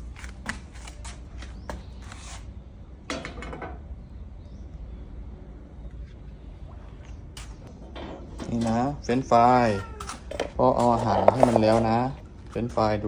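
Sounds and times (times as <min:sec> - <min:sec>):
scraping rustle: 0:10.0 - 0:12.6.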